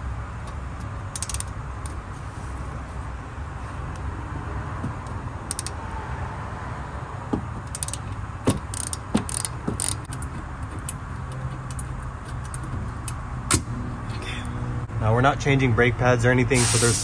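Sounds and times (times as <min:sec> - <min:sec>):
ratchet metallic clicks: 0:00.4 - 0:02.0, 0:05.0 - 0:05.8, 0:07.6 - 0:13.2.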